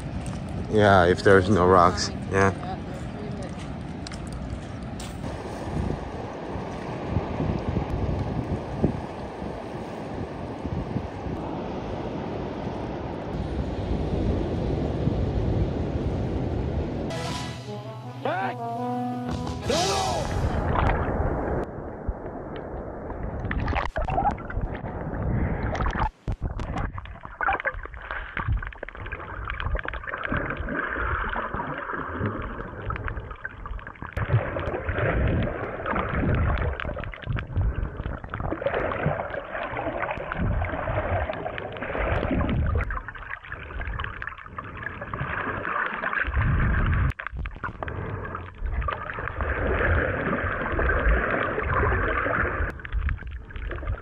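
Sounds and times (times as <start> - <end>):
underwater water rushing and gurgling: 4.2 - 17.0, 20.3 - 54.0
low underwater rumbles: 20.4 - 54.0.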